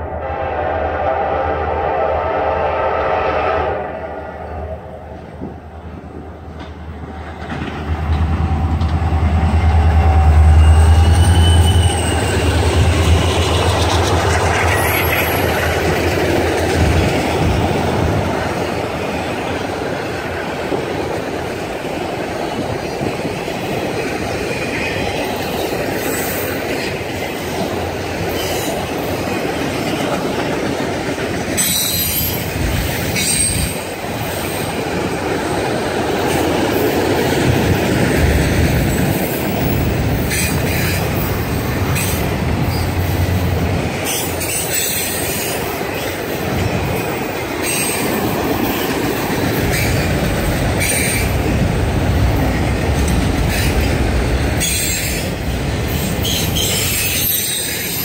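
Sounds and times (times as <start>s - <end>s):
train rumble: 0.0s - 58.0s
train cars rolling: 4.7s - 58.0s
wheel squeals: 10.5s - 13.6s.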